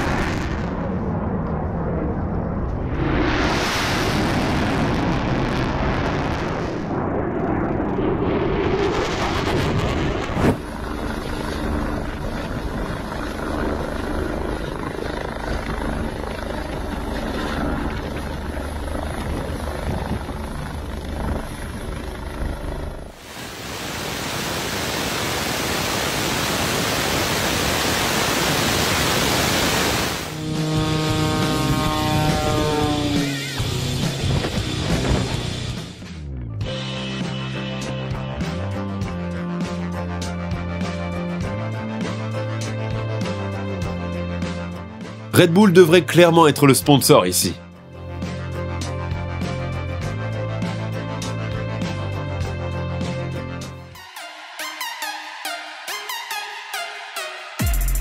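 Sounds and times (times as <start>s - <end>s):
fighter jet roaring past: 0.0s - 22.0s, 22.9s - 36.0s
helicopter turbine and rotor: 0.0s - 58.0s
loud even rushing hiss: 23.2s - 30.8s
music: 30.4s - 58.0s.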